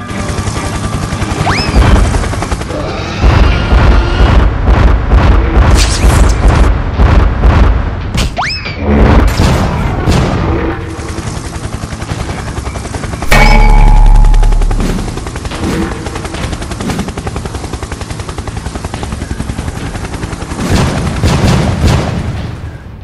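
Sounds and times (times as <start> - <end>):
cartoon helicopter rotor chopping: 0.0 - 7.7, 10.4 - 21.3.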